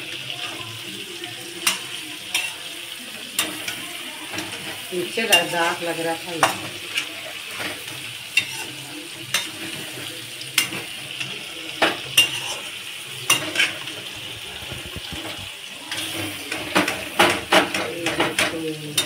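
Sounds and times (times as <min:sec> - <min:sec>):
chicken sizzling in hot oil: 0:00.0 - 0:19.0
metal spoon scraping a pan: 0:01.5 - 0:19.0.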